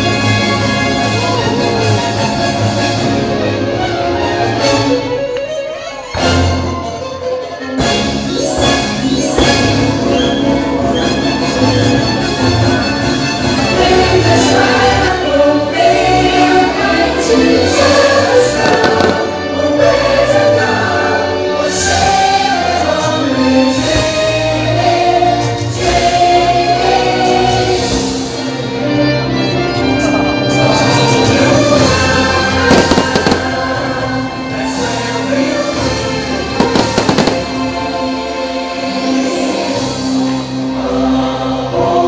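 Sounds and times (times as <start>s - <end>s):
choral music playing: 0.0s - 42.0s
fireworks bursting and crackling: 18.5s - 19.5s, 32.7s - 34.0s, 36.6s - 38.0s.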